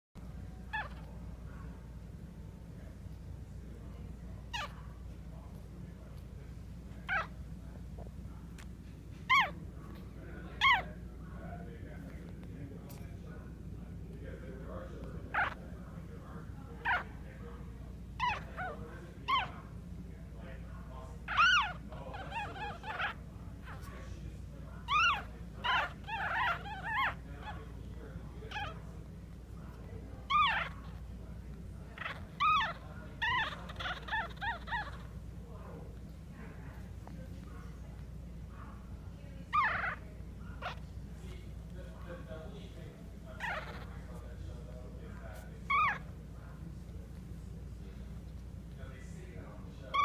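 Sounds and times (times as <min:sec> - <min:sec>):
steady low hum: 0:00.2 - 0:50.0
puppy squeaking: 0:00.7 - 0:01.3, 0:04.4 - 0:05.0, 0:07.0 - 0:07.4, 0:08.6 - 0:10.0, 0:10.6 - 0:11.0, 0:15.2 - 0:15.7, 0:16.8 - 0:17.2, 0:18.2 - 0:19.7, 0:21.3 - 0:24.0, 0:24.8 - 0:27.7, 0:28.5 - 0:31.2, 0:31.8 - 0:35.2, 0:39.4 - 0:41.0, 0:43.3 - 0:44.1, 0:45.6 - 0:46.2.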